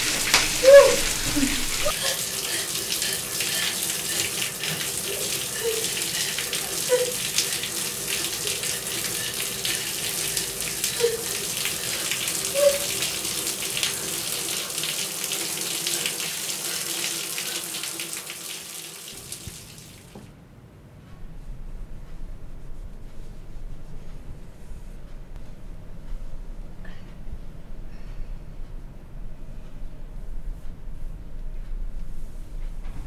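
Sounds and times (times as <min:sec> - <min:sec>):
water splashing in bathtub: 0:00.0 - 0:20.2.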